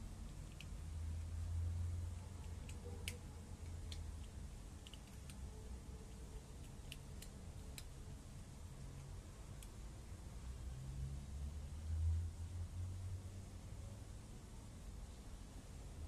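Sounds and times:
low steady hum: 0.0s - 16.0s
kitten chewing clicks: 0.2s - 1.3s, 2.1s - 8.1s.

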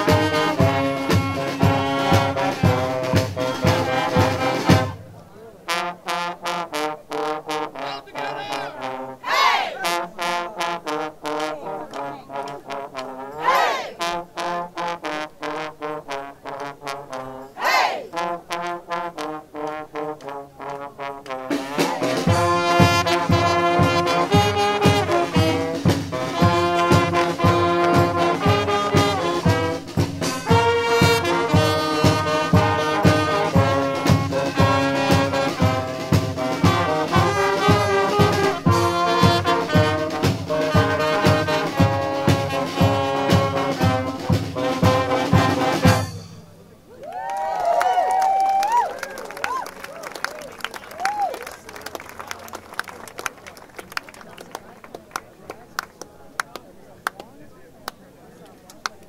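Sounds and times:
drums: 0.0s - 5.2s, 19.6s - 46.8s
trombone slide: 0.0s - 46.6s
brass band playing: 0.0s - 46.7s.

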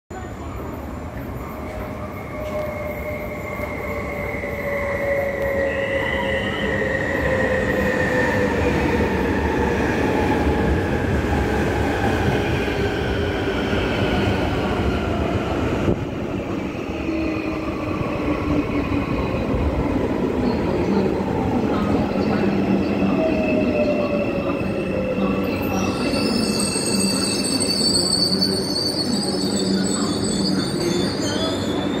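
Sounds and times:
train brakes squealing: 0.2s - 9.4s, 22.2s - 32.0s.

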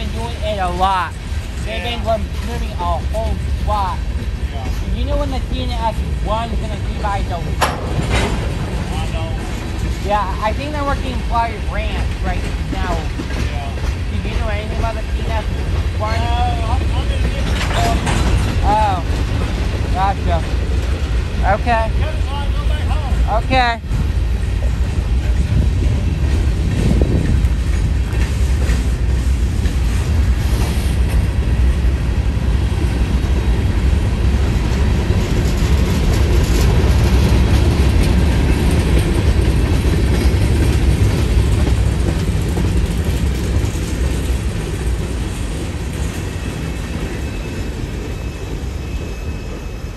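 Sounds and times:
wheels clicking on rails: 0.0s - 23.3s, 23.9s - 49.9s
freight train wheels rumbling on rails: 0.0s - 49.9s.

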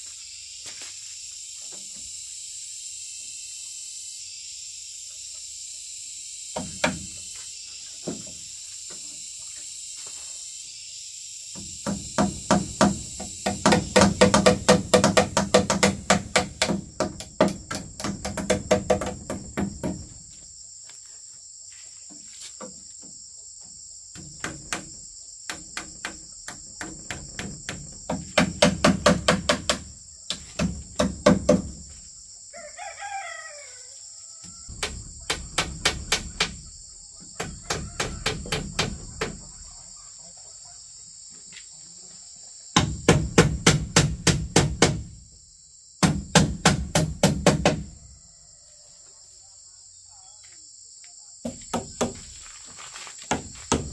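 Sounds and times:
crickets chirring: 0.0s - 53.9s
rapid knocking strikes: 11.8s - 20.1s, 34.7s - 36.6s, 42.8s - 45.1s, 46.0s - 47.9s.

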